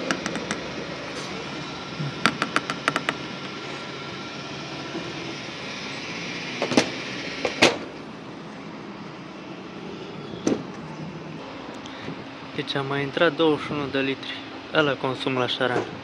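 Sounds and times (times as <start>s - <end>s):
steady forecourt hum: 0.0s - 16.0s
fuel pump clicks: 2.2s - 3.6s.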